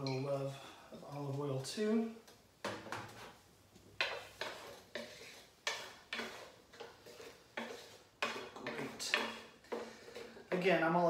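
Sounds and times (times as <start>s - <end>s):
wooden spoon scraping frying pan: 2.6s - 10.7s.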